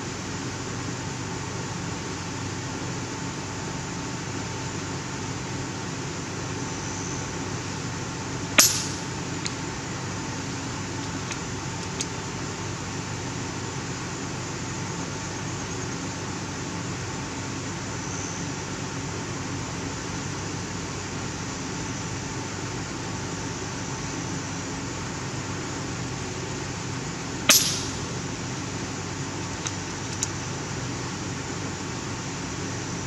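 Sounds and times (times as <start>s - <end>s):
steady background hum: 0.0s - 33.0s
air rifle shot crack: 8.6s - 9.2s, 27.5s - 28.2s
faint clicks: 29.6s - 30.4s.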